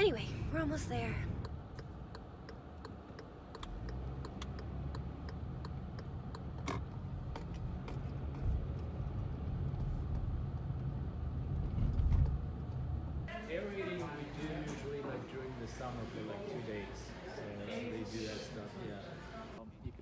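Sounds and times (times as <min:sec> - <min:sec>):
road and engine rumble: 0:00.0 - 0:20.0
light regular ticking: 0:01.2 - 0:07.5.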